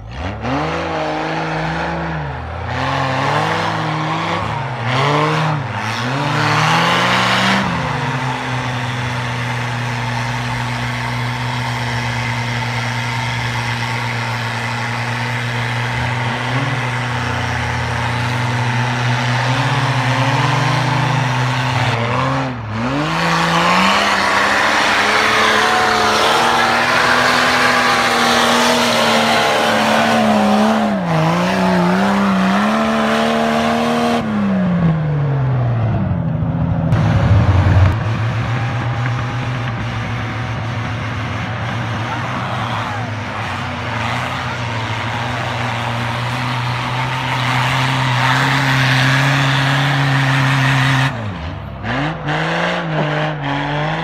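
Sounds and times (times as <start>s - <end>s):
diesel engines revving: 0.0s - 54.0s
tyres spinning in snow: 2.6s - 33.4s.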